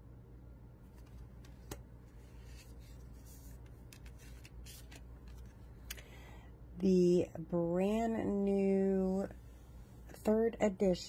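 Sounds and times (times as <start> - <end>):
cards sliding and tapping: 0.9 - 6.0.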